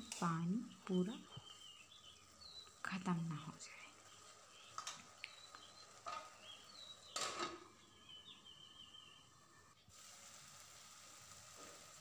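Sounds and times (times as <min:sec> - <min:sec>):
bird chirping: 0:00.2 - 0:09.8.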